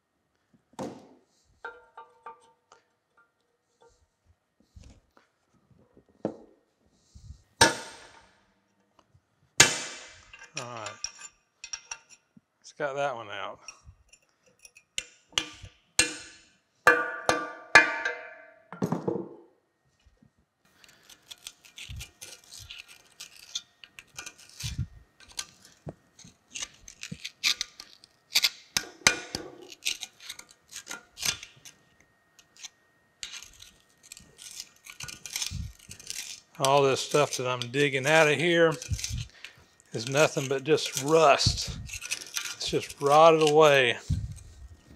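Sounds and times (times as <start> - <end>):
hand tool scraping rust: 20.7 - 44.9.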